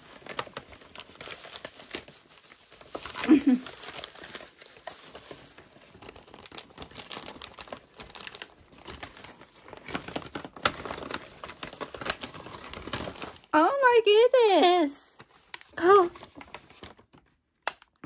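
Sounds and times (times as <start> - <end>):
plastic packaging crinkling: 0.0 - 13.6, 15.2 - 18.0.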